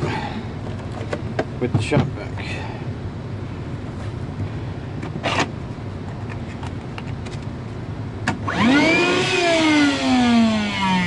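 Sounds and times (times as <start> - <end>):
steady low hum: 0.0 - 11.0
shop vacuum motor whine: 8.3 - 11.0.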